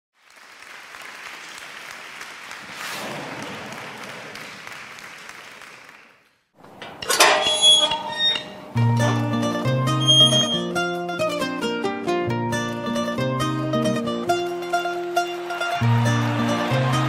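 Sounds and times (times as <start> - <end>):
music: 8.7 - 17.0.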